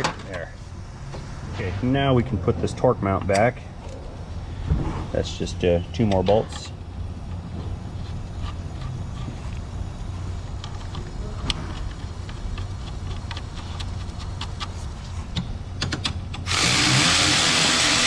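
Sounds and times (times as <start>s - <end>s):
steady low hum: 0.0s - 18.0s
power tool running down bolt: 16.4s - 18.0s.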